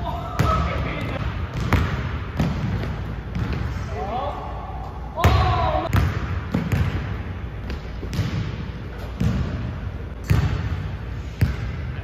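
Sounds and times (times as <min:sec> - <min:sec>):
basketball bouncing on hardwood floor: 0:00.4 - 0:03.6, 0:05.2 - 0:08.6, 0:09.2 - 0:09.6.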